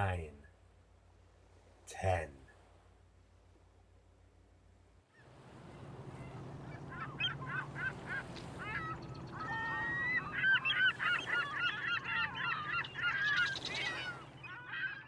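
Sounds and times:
low steady hum: 0.0s - 15.0s
gulls calling: 5.1s - 15.0s.

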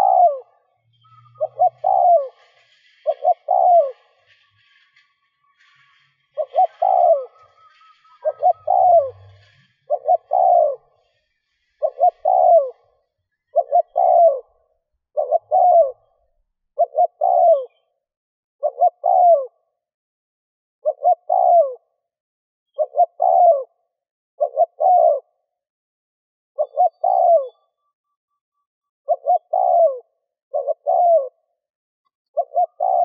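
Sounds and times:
dove cooing: 0.0s - 4.4s, 5.7s - 17.8s, 18.6s - 19.6s, 20.8s - 22.0s, 22.8s - 23.8s, 24.4s - 25.4s, 26.6s - 27.7s, 29.1s - 31.5s, 32.4s - 33.0s.

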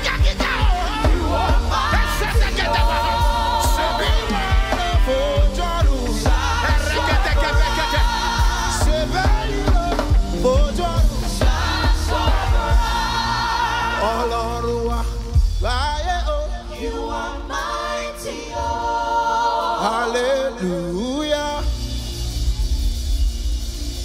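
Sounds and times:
voices singing long notes: 0.0s - 15.4s, 16.0s - 23.4s
band playing: 0.0s - 24.0s
bass: 0.0s - 24.0s.

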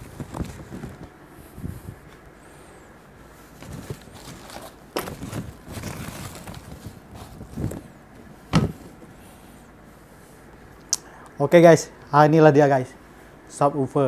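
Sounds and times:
packing material rustling: 0.0s - 1.2s, 3.5s - 9.0s
dull thumps and knocks: 8.5s - 9.1s.

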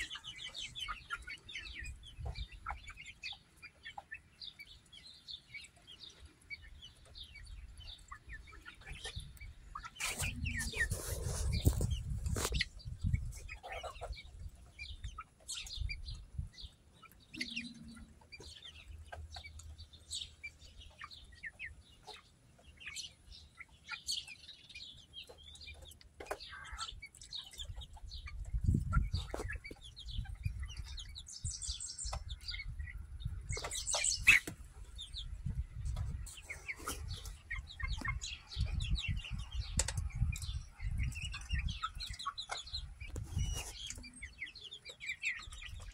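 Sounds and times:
chickens clucking: 0.0s - 45.9s.

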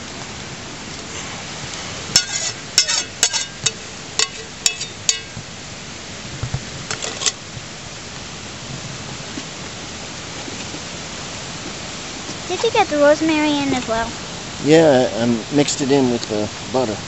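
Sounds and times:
steady background hiss: 0.0s - 17.0s
metal spoon clinking on saucepan: 2.2s - 5.3s.

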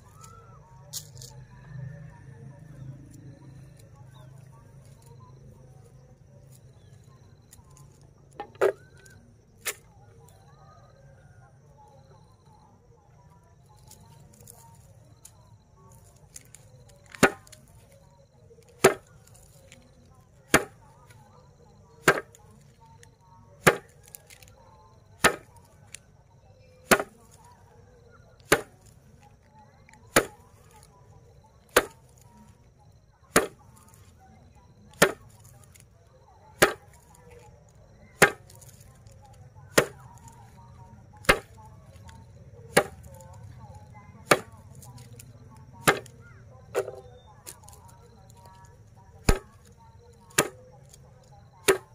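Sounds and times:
grass stalks slapping a board: 7.5s - 9.9s, 13.7s - 18.0s, 18.6s - 21.2s, 22.0s - 23.0s, 23.6s - 26.0s, 26.8s - 27.6s, 28.4s - 30.9s, 31.6s - 32.5s, 33.3s - 34.3s, 34.9s - 43.6s, 44.2s - 51.9s.

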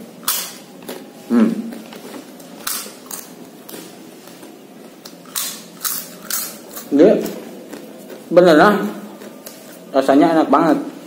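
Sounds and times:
crunchy chip being chewed: 7.6s - 8.4s.

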